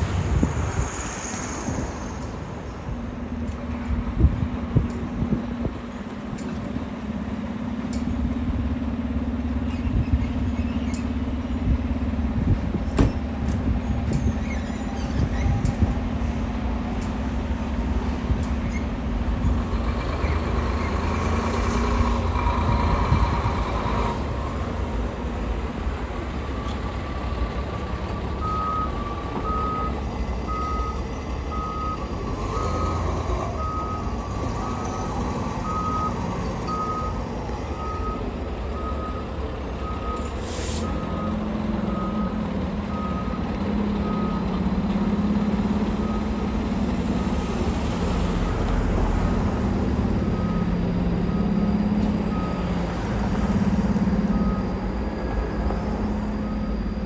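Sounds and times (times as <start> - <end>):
diesel engine running: 0.0 - 57.0
reversing alarm beeping: 28.3 - 44.6, 46.0 - 46.6, 50.1 - 53.0, 54.1 - 57.0
short sharp hiss: 40.4 - 40.9.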